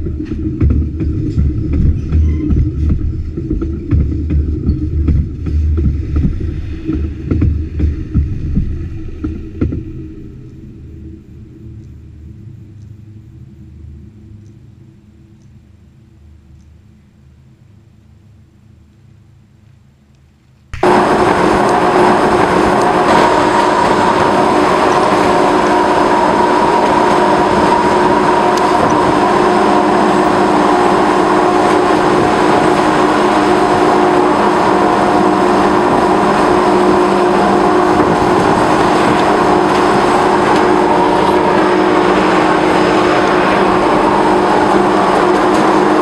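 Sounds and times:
wheels rumbling on rails: 0.0s - 11.0s, 20.8s - 46.0s
diesel locomotive droning: 0.0s - 16.5s, 20.8s - 46.0s.

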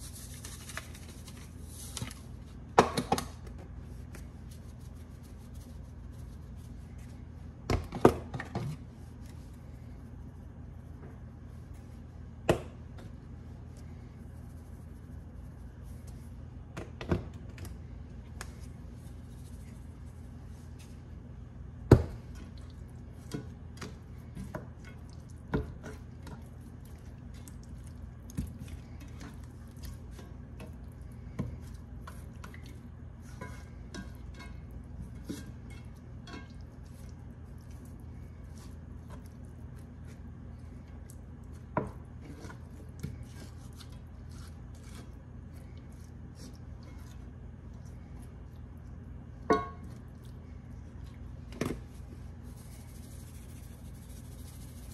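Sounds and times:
steady low hum: 0.0s - 54.9s
meat knocking against a pan: 49.5s - 49.9s.

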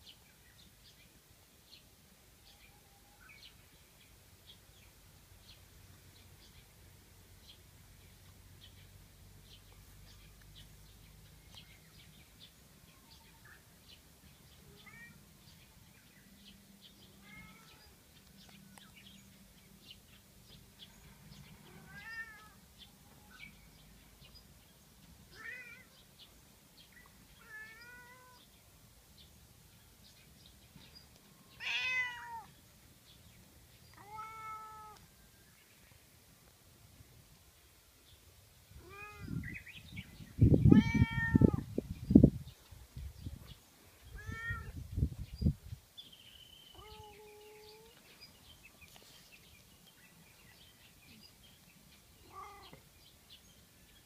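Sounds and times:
cat meowing: 17.2s - 17.9s, 21.7s - 22.6s, 25.3s - 26.0s, 27.4s - 28.4s, 31.6s - 32.5s, 34.0s - 35.0s, 38.8s - 39.4s, 40.7s - 41.7s, 44.1s - 44.8s, 46.7s - 47.9s, 52.2s - 52.8s.

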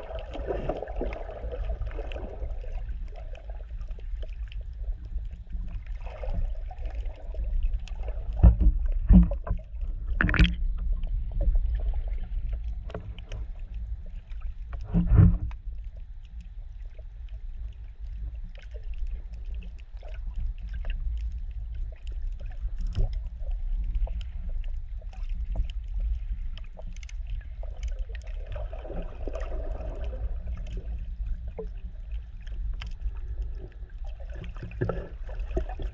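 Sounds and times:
underwater rumble of moving water: 0.0s - 35.9s.

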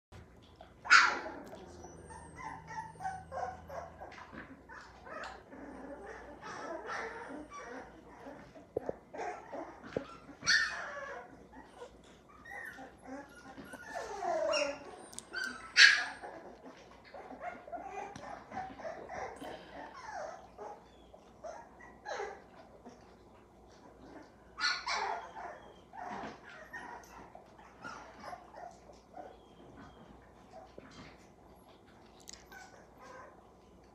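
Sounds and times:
puppies yipping and whimpering: 0.4s - 33.9s.

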